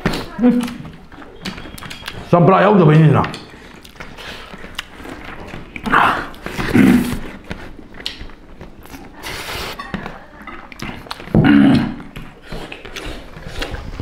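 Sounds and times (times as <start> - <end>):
chewing and mouth noises: 0.0 - 2.4, 3.2 - 14.0
hands and food tapping plates: 0.0 - 9.0.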